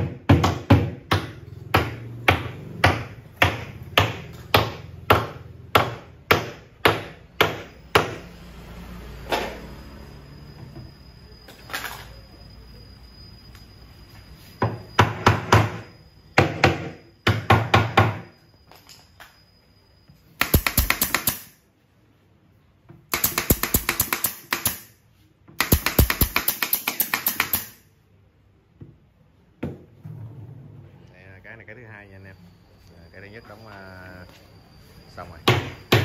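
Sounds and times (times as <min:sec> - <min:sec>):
pneumatic nail gun firing: 0:20.4 - 0:21.6, 0:23.1 - 0:25.0, 0:25.6 - 0:27.9.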